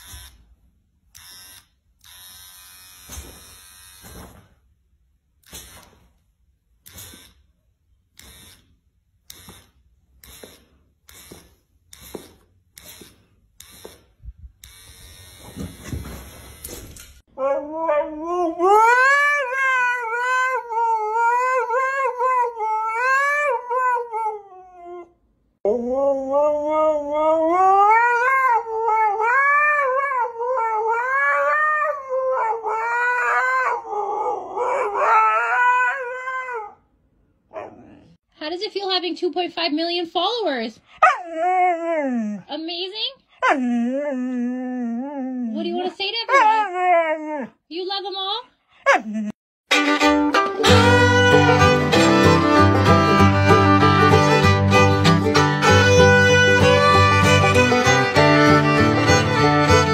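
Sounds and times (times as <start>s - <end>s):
electric hair trimmer buzzing: 0.0s - 0.3s, 1.2s - 4.3s, 8.2s - 8.6s, 12.0s - 15.9s.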